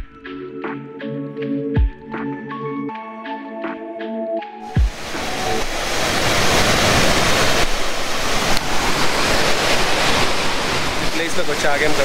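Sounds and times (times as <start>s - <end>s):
waterfall rushing: 4.6s - 12.0s.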